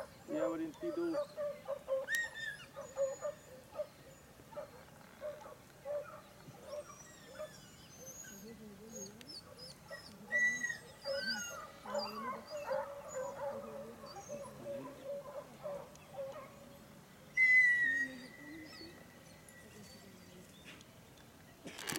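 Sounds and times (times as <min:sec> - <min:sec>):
dogs baying and yelping: 0:00.0 - 0:16.7
birds chirping: 0:00.0 - 0:21.7.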